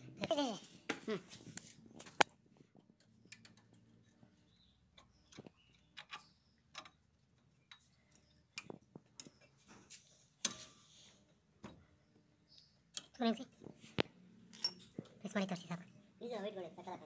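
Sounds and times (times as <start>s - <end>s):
faint metallic clicks and taps: 4.9s - 10.6s.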